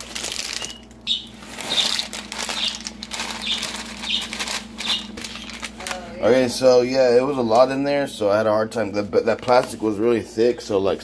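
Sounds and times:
plastic bag crinkling: 0.0s - 6.1s.

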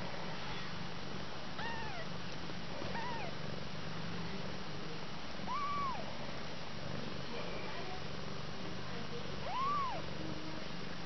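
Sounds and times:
kitten mewing: 1.6s - 2.1s, 2.9s - 3.4s, 5.5s - 6.1s, 9.4s - 10.1s
low purr: 1.6s - 11.0s.

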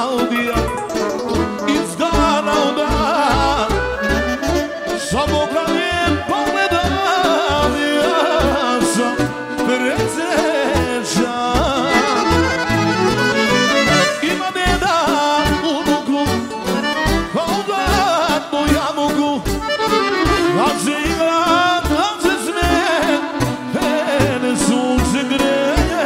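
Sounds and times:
accordion: 0.0s - 26.0s
deep bass notes: 0.5s - 10.1s, 10.7s - 15.6s.

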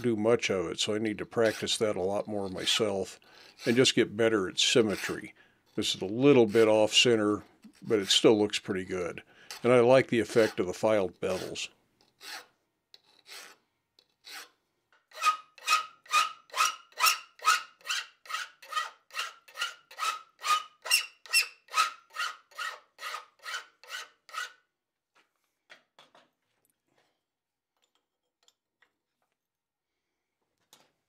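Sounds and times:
hand file strokes on metal: 1.4s - 4.0s, 4.6s - 8.4s, 9.5s - 24.6s.

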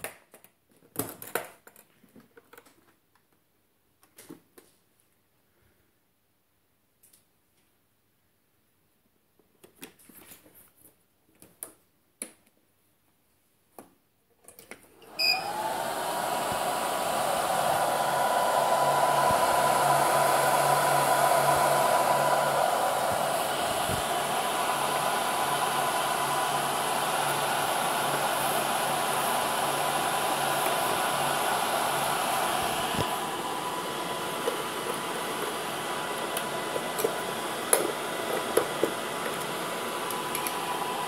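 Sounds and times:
cooling fans whirring: 15.1s - 38.4s.

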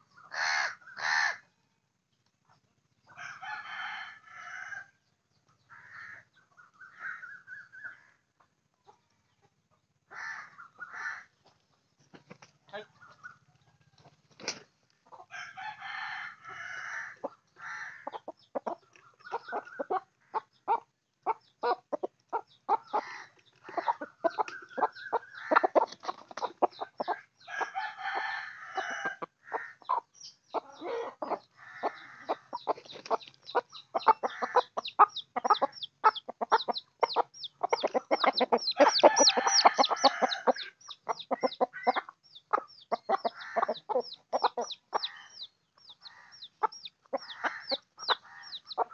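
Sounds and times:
hens clucking: 5.5s - 48.9s
chickens pecking on hard ground: 17.2s - 27.2s, 31.3s - 45.1s.

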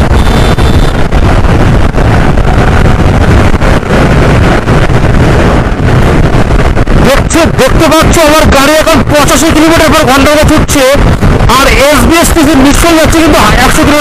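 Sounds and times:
vehicle noise: 0.0s - 14.0s
wind buffeting microphone: 0.0s - 14.0s.

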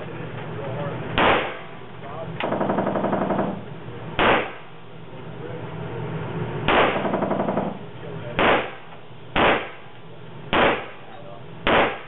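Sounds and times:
handgun shots: 1.2s - 1.7s, 4.2s - 4.7s, 6.7s - 7.2s, 8.4s - 9.8s, 10.5s - 11.0s, 11.7s - 12.0s.

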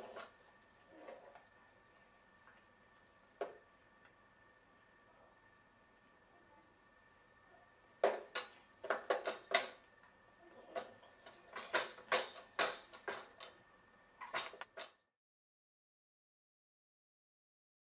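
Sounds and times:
hard plastic clacking and knocking: 8.0s - 9.9s, 10.8s - 13.6s.

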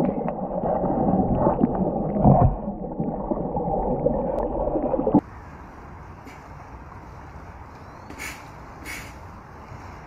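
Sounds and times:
underwater bubbles rushing: 0.0s - 5.2s.

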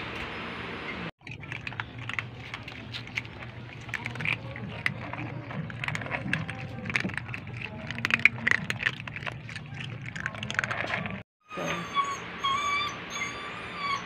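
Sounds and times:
cats crunching dry kibble: 1.2s - 11.2s.

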